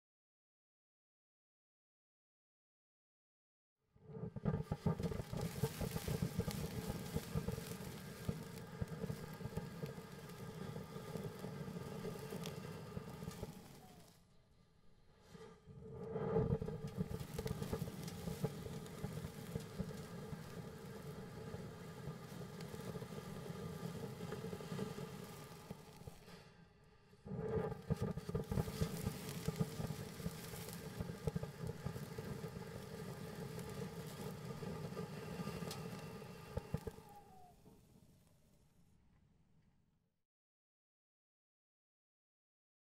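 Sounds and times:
firework buzzing drone: 0:04.2 - 0:14.2, 0:16.0 - 0:26.4, 0:27.3 - 0:37.9
firework hissing and crackling: 0:04.2 - 0:14.3, 0:15.2 - 0:37.9.

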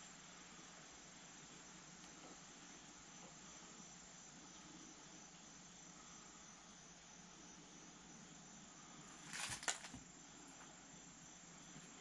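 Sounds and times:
faint background hiss: 0:00.0 - 0:12.0
scraping rustle: 0:09.2 - 0:10.0.

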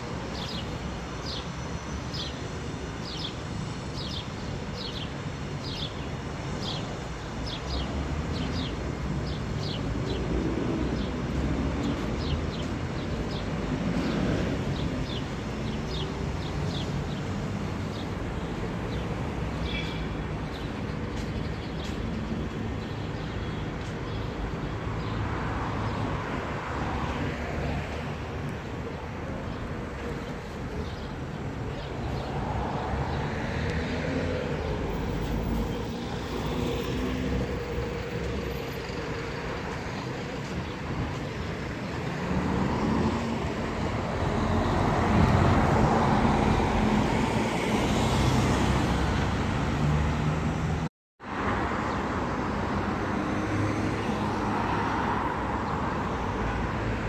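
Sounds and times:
low traffic rumble: 0:06.5 - 0:50.9.

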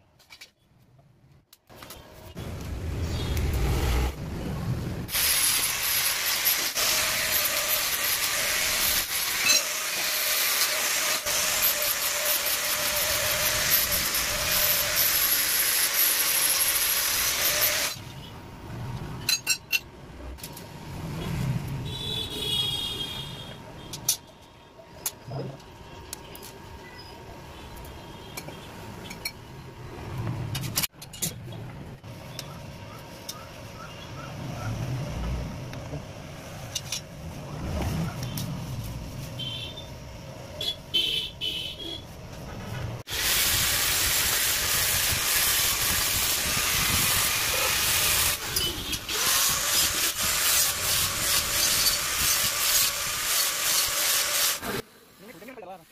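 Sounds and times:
angle grinder cutting steel pipe: 0:05.1 - 0:18.1, 0:43.1 - 0:54.8
steel pieces clinking and knocking: 0:19.2 - 0:19.9.

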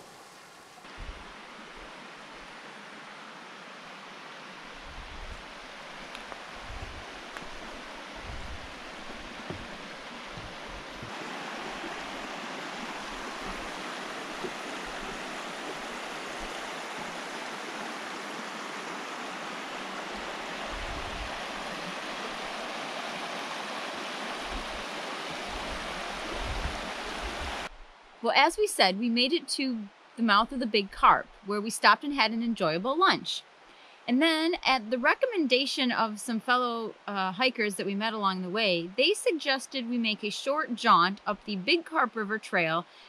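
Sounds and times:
river flowing over stones: 0:00.0 - 0:27.7.

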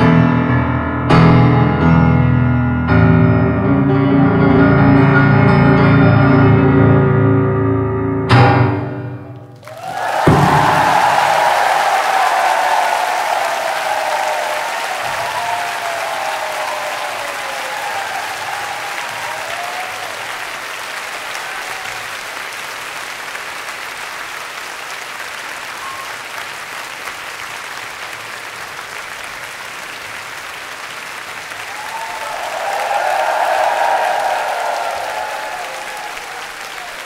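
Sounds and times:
audience applauding: 0:09.5 - 0:37.0
people whooping: 0:09.6 - 0:22.4, 0:31.5 - 0:37.0.

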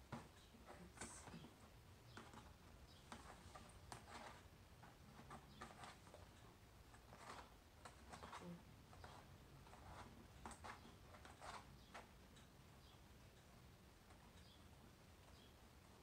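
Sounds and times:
fingers scratching cardboard: 0:02.1 - 0:04.5, 0:05.1 - 0:06.3, 0:07.0 - 0:12.1.

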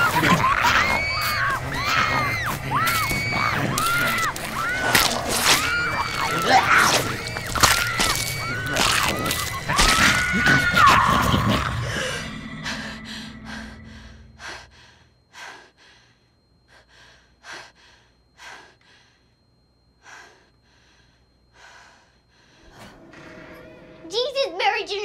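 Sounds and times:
screaming: 0:00.0 - 0:12.8.

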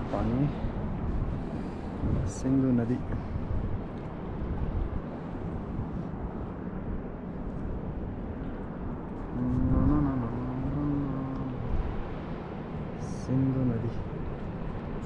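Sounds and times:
man's low voice: 0:00.0 - 0:00.7, 0:02.0 - 0:03.4, 0:09.3 - 0:12.0, 0:13.0 - 0:14.1
river rushing: 0:08.2 - 0:15.0.

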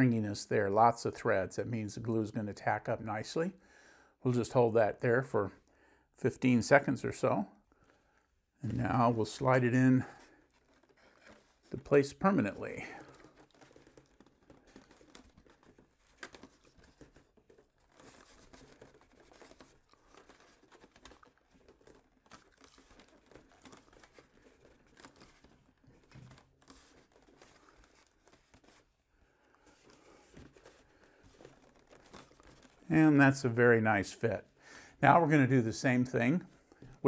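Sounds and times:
rustles and clicks of handling: 0:07.0 - 0:35.2.

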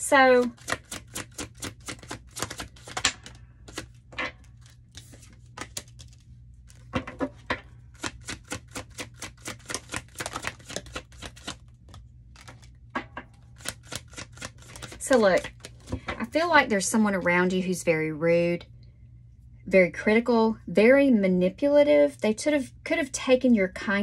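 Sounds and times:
cards being shuffled: 0:00.4 - 0:12.8, 0:13.5 - 0:16.0.

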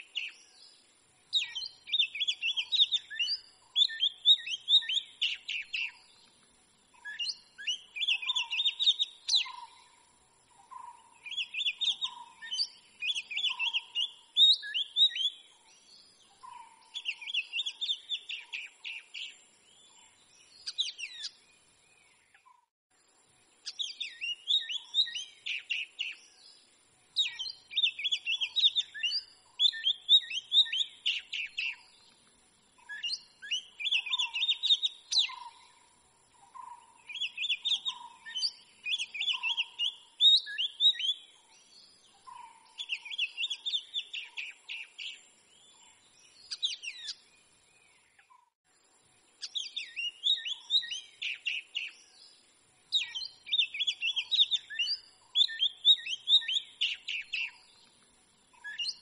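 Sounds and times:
bird singing whistled phrases: 0:01.3 - 0:06.1, 0:07.0 - 0:09.8, 0:11.2 - 0:15.5, 0:16.4 - 0:19.9, 0:23.7 - 0:26.3, 0:27.2 - 0:31.9, 0:32.8 - 0:35.6, 0:37.0 - 0:45.8, 0:46.4 - 0:47.2, 0:49.4 - 0:52.2, 0:52.9 - 0:57.7, 0:58.5 - 0:59.0.

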